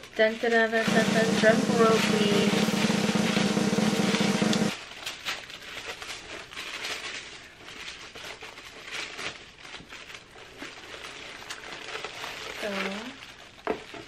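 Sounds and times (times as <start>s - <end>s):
paper rustling and crinkling: 4.8s - 14.0s.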